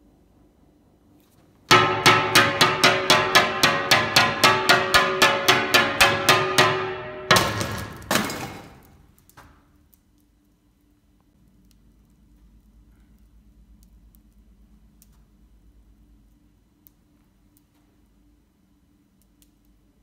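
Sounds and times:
hammer striking ringing glass panel: 1.7s - 8.4s.

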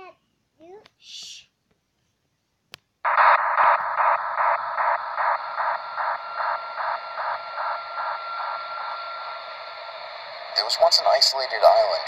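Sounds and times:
pulsing static hiss: 3.1s - 12.0s
steady high tone: 3.1s - 12.0s.

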